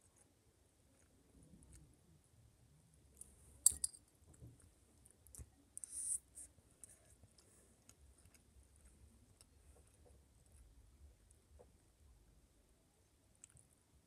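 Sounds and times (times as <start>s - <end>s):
spoon clicking against bowl: 3.7s - 4.0s.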